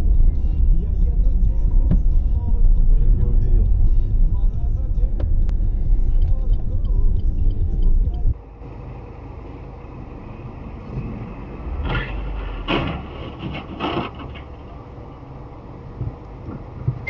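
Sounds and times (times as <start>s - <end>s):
loud low road rumble: 0.0s - 17.0s
vehicle cabin hum: 0.0s - 17.0s
metal scraping crunches: 10.9s - 14.8s.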